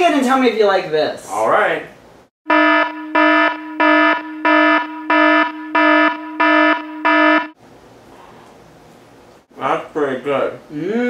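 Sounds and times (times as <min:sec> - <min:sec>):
electronic alarm buzzer pulsing: 0:02.4 - 0:07.6.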